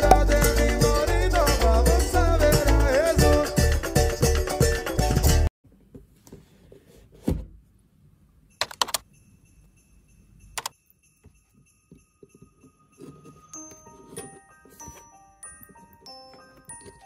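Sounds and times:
music: 0.0s - 5.5s, 10.8s - 17.0s.

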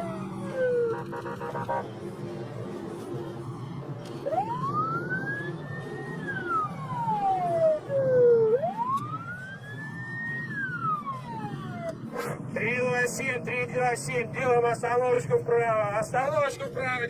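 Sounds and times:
police siren wailing: 0.0s - 15.6s
road noise: 0.0s - 17.0s.

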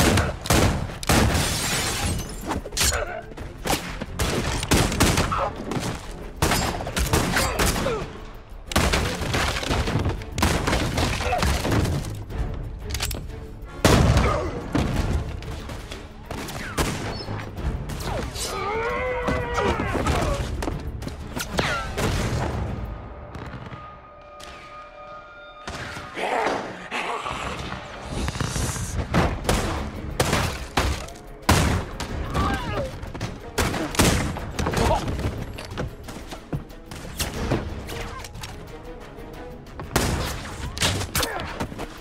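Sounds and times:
gunshots: 0.0s - 2.0s, 3.6s - 8.1s, 8.7s - 12.1s
orchestral music: 0.0s - 42.0s.

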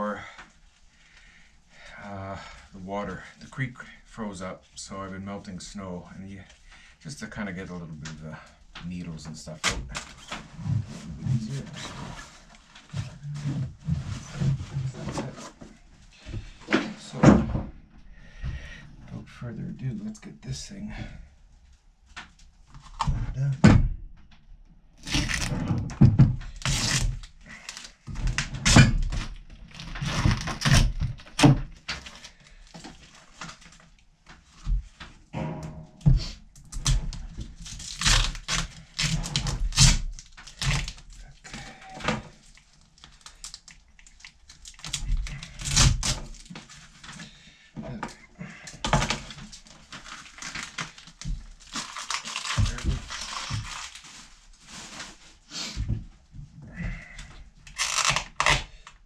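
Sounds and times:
plastic crinkling and tearing: 25.0s - 25.7s, 26.5s - 34.0s, 36.7s - 47.3s, 48.8s - 55.4s, 57.7s - 58.8s.

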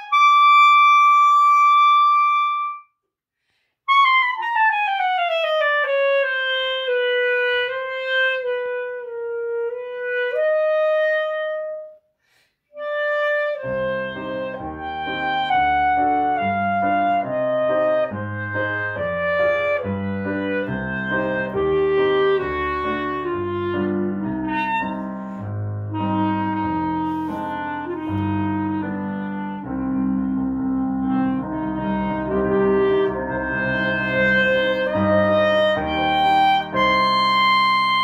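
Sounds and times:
clarinet melody: 0.0s - 3.0s, 3.9s - 12.1s, 12.7s - 38.0s
piano chords: 12.8s - 38.0s.

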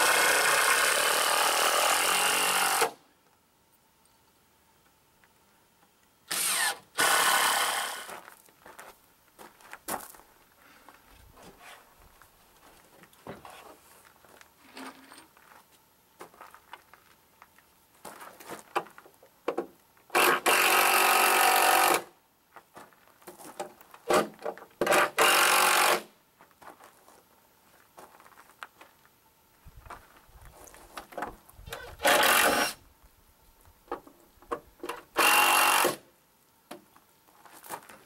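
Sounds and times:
power tool running: 0.0s - 3.0s, 6.3s - 8.1s, 20.2s - 22.1s, 24.9s - 26.1s, 32.0s - 32.8s, 35.2s - 36.0s.

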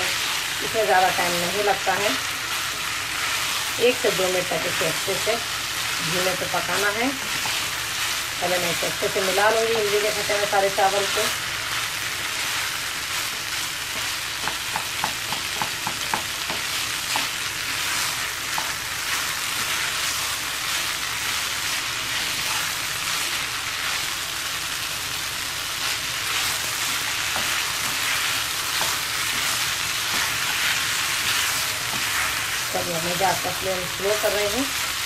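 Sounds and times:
rice sizzling in a pan: 0.0s - 35.0s
spatula scraping a pan: 25.8s - 32.6s.

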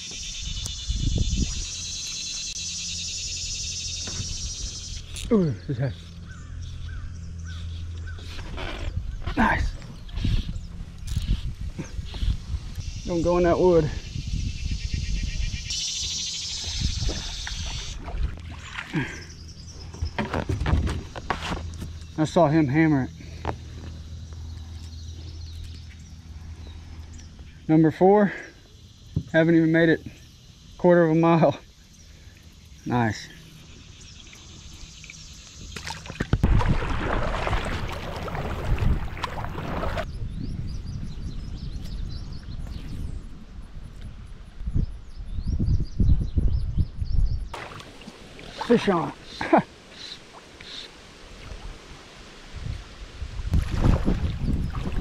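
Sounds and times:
river ambience: 0.0s - 40.1s, 47.5s - 55.0s
birds chirping: 0.0s - 43.7s, 44.4s - 51.1s, 53.7s - 55.0s
wind on microphone: 0.4s - 1.8s, 8.2s - 15.8s, 16.5s - 18.6s, 36.3s - 47.8s, 52.5s - 55.0s
water splashing: 17.0s - 19.2s, 35.7s - 40.1s, 47.6s - 55.0s.

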